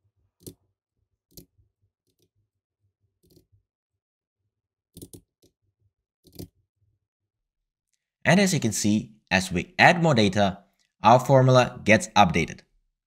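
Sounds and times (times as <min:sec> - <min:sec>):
keyboard and mouse clicks: 0:03.2 - 0:03.5, 0:05.0 - 0:05.6, 0:06.2 - 0:06.5.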